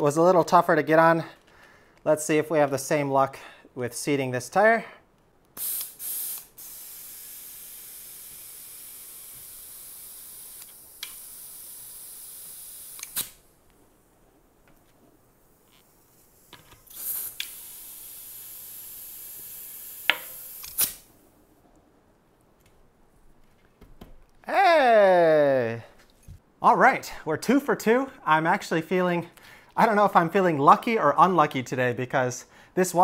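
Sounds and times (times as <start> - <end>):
compressed air hissing into tire: 5.6 - 13.5, 15.2 - 21.2
sharp snaps: 10.6 - 11.4, 12.9 - 13.4, 20.1 - 21.1.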